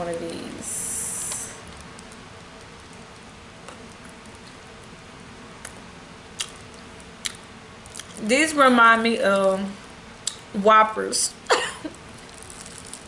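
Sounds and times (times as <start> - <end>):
crunchy candy being chewed: 6.4 - 8.2, 12.1 - 13.0.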